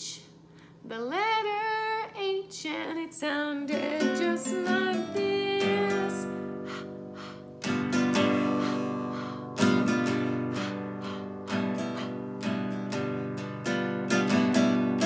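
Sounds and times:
acoustic guitar strumming: 3.7s - 15.0s.

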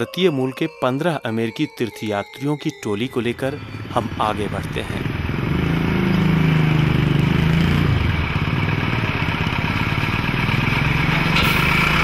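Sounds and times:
minibus engine idling: 3.4s - 12.0s.

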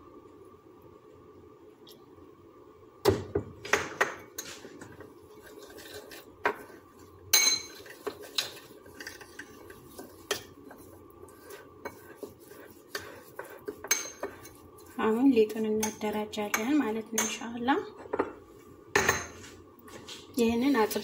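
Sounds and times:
metal spoon stirring in ceramic bowl: 4.4s - 18.1s.

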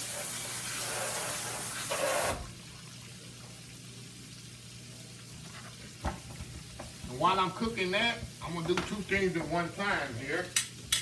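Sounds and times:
shrimp sizzling in oil: 0.0s - 2.5s
tap running into sink: 6.0s - 7.2s, 8.1s - 9.5s.

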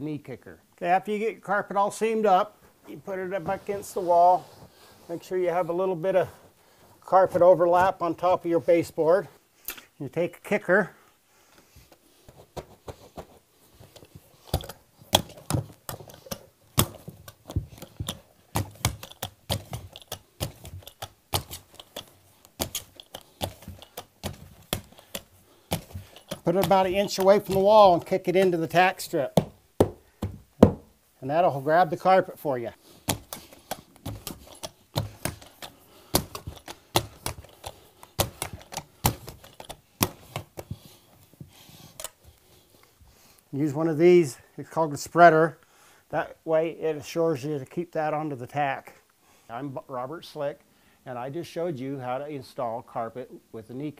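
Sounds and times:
carpet knee kicker clacking: 12.3s - 30.9s, 33.0s - 41.0s
knee kicker knocking: 29.4s - 30.9s.

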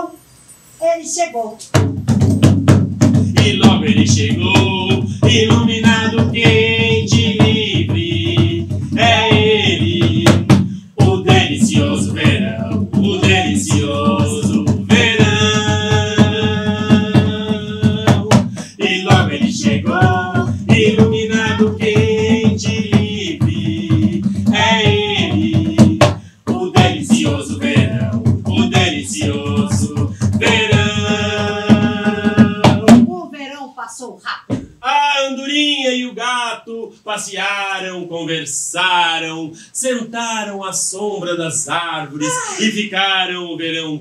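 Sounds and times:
hand drum: 1.6s - 33.2s
person singing: 11.0s - 23.7s, 42.2s - 42.9s.

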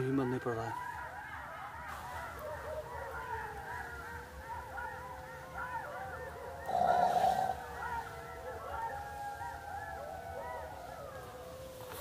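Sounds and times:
wild animals calling: 1.9s - 11.3s.

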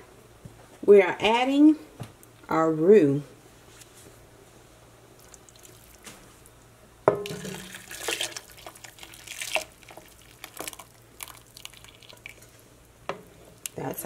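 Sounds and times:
liquid splashing in a pot: 7.2s - 13.8s.

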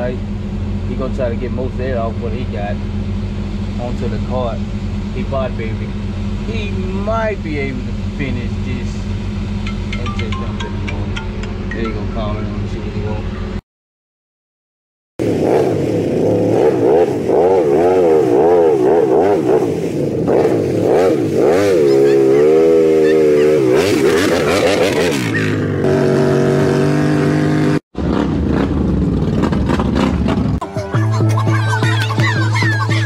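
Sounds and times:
atv engine revving in mud: 15.2s - 30.6s.

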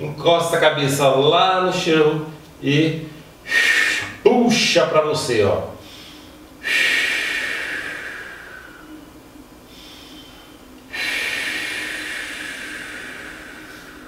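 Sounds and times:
man breathing out: 5.8s - 9.1s, 9.7s - 14.0s.

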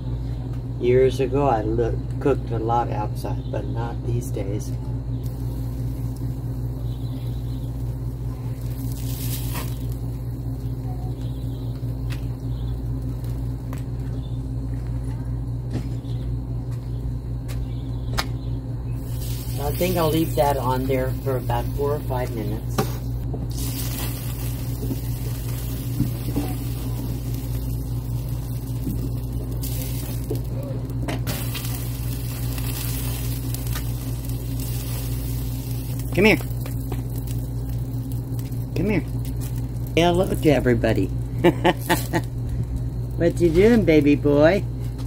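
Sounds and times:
low mechanical hum: 0.0s - 45.0s
meat crackling on grill: 5.2s - 14.2s, 19.0s - 44.5s.

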